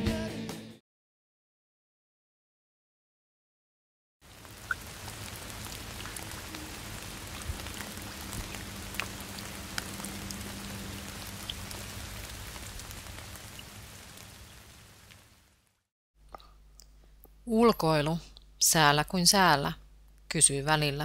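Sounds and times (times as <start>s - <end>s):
steady rain falling: 4.2s - 15.9s
rain drop ticks: 4.3s - 15.4s.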